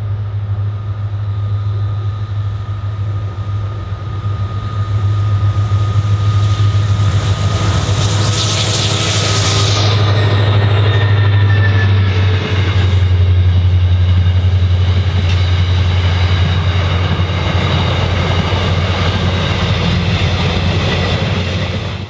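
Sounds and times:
freight train wheels rumbling on rail: 0.0s - 22.0s.

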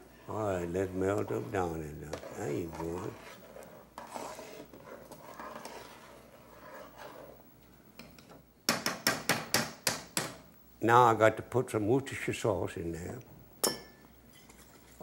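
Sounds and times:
spoon scraping metal stockpot: 1.0s - 7.4s.

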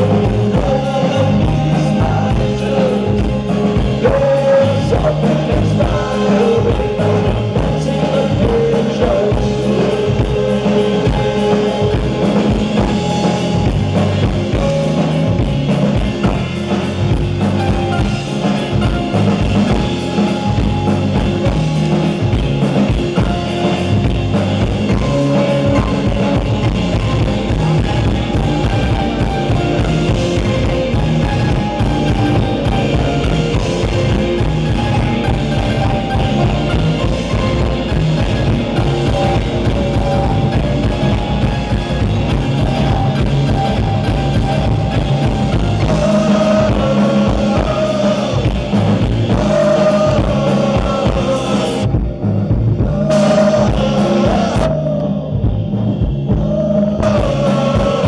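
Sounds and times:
man singing: 0.0s - 13.7s, 24.4s - 28.0s, 28.6s - 43.7s, 45.3s - 52.0s, 52.7s - 58.0s
drum kit: 0.0s - 58.0s
electric guitar: 0.0s - 58.0s.

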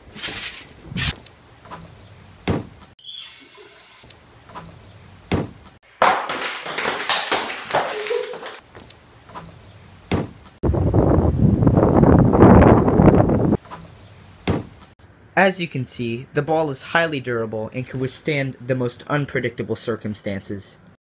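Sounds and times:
basketball bouncing: 2.4s - 2.8s, 5.3s - 8.6s, 10.1s - 10.4s
wind buffeting microphone: 10.6s - 13.6s.

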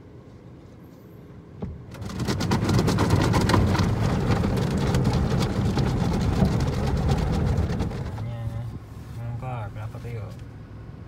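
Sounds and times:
water drumming on car body: 1.6s - 8.2s.

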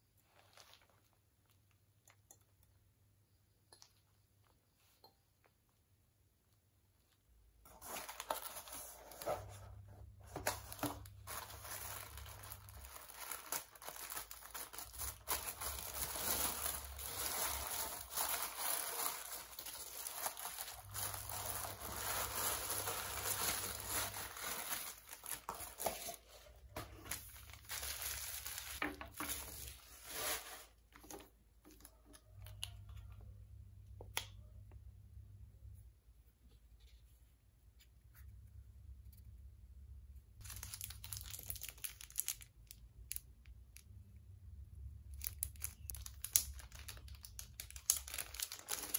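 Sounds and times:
packaging paper crinkling and tearing: 7.7s - 31.2s, 40.4s - 42.8s, 45.1s - 48.9s.

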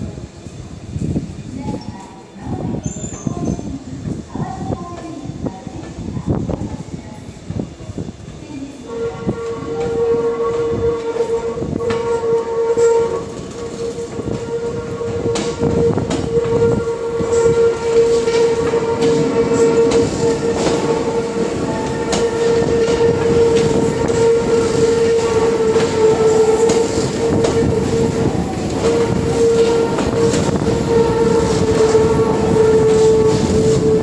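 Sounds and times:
locomotive droning: 8.6s - 34.0s.

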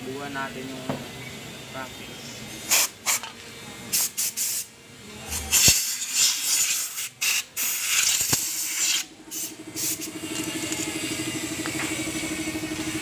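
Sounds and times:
aerosol spraying in hissing bursts: 2.5s - 4.7s, 5.3s - 10.2s
engine idling: 9.1s - 13.0s.

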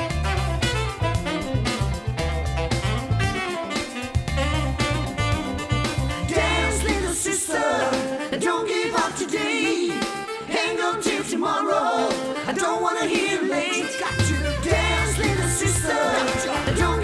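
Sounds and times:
bass line: 0.0s - 7.5s, 14.1s - 17.0s
pop singing: 5.7s - 17.0s.

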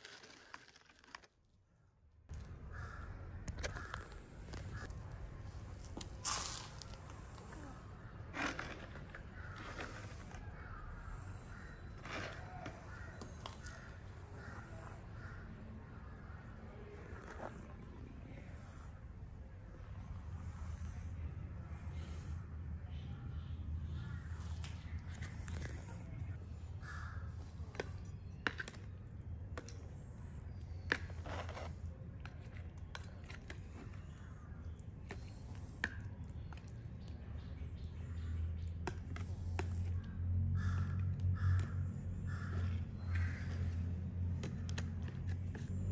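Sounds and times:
crows cawing: 2.7s - 4.9s, 9.3s - 16.5s, 26.8s - 27.9s, 40.5s - 43.8s.

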